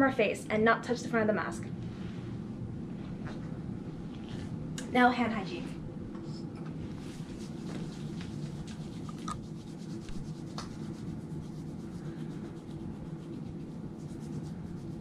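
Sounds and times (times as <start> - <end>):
low room hum: 0.0 - 15.0
hands rubbing together: 6.9 - 15.0.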